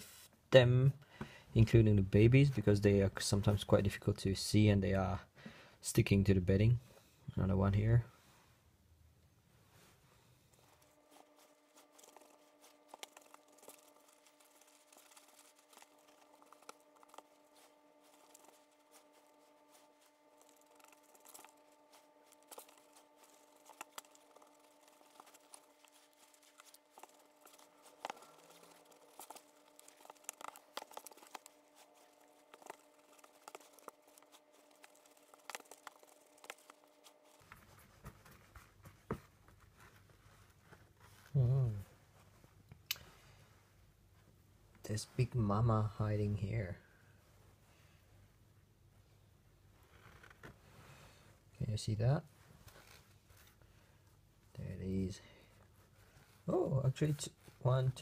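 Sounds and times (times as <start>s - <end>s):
faint steady hum: 0.0s - 58.0s
rustling of damp paper bedding: 10.6s - 42.4s.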